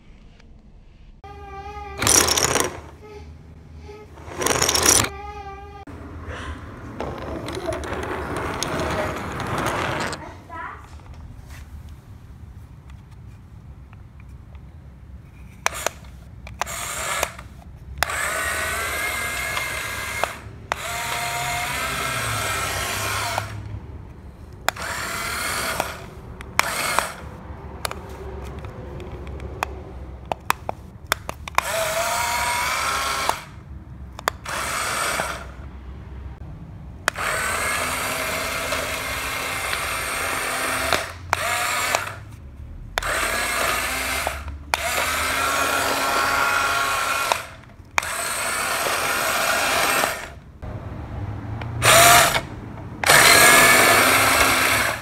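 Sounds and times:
toy car motor whirring: 1.6s - 3.2s, 3.8s - 5.9s, 7.0s - 10.3s, 15.3s - 23.8s, 24.4s - 29.7s, 30.3s - 35.6s, 37.1s - 42.4s, 43.0s - 50.4s, 51.8s - 55.0s.

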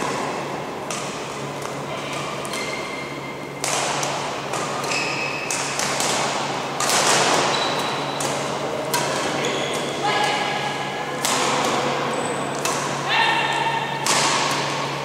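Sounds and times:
rackets hitting shuttlecock: 0.0s - 15.0s
shoes squeaking on court: 4.8s - 5.5s, 7.4s - 8.5s, 9.2s - 10.0s.

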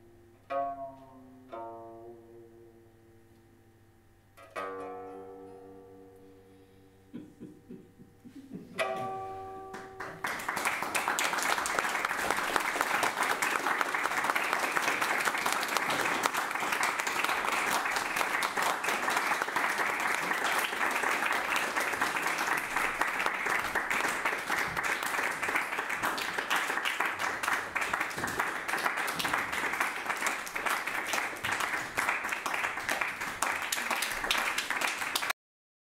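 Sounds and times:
audience applauding: 9.7s - 35.4s.

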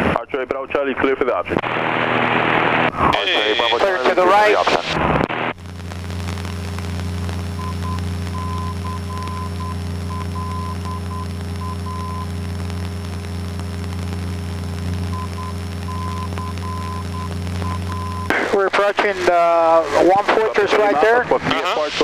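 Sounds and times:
faint beeping tone: 7.6s - 12.2s.

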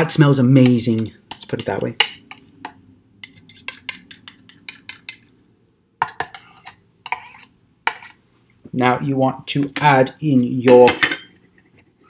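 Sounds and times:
knife scraping plastic bowl: 3.2s - 5.3s, 6.2s - 8.2s.

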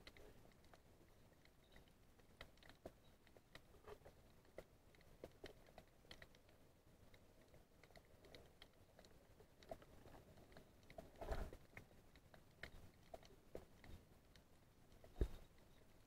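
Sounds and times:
irregular clicks and ticks: 0.0s - 16.0s.

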